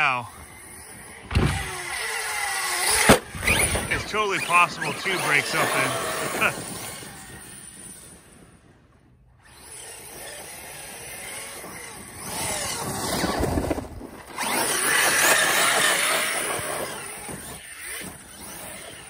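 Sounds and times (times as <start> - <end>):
electric motor whining: 0.0 - 8.7, 9.3 - 19.0.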